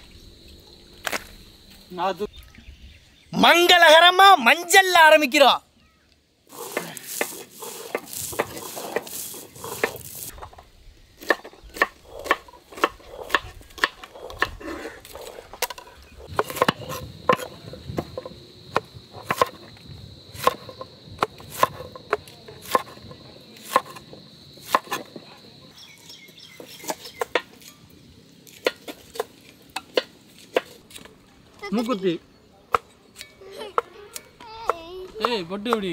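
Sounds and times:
stone roller grinding: 6.5s - 10.6s, 11.2s - 18.3s
knife chopping on wooden board: 11.2s - 19.6s, 20.4s - 25.2s.

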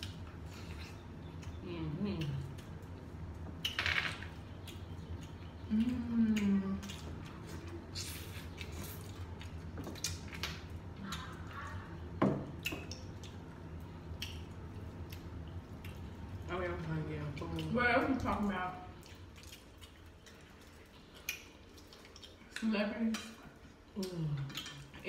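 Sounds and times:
person humming: 5.7s - 6.8s.

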